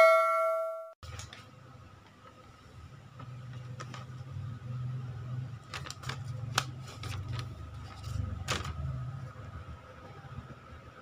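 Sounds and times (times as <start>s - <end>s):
paper crackling and rustling: 3.2s - 4.5s, 5.4s - 9.3s.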